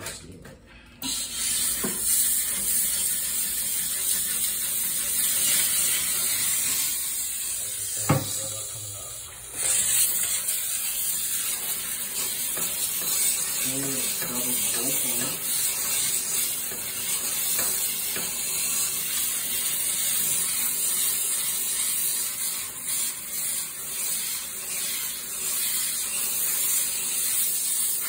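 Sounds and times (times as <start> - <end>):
steam cleaner hissing: 1.0 - 28.0
sharp knock: 8.0 - 8.3.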